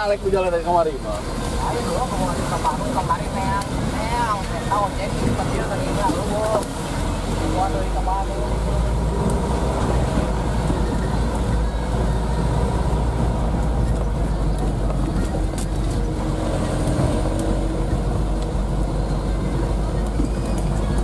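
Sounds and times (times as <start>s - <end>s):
diesel engine rumbling: 0.0s - 21.0s
tyres on rough road: 0.0s - 21.0s.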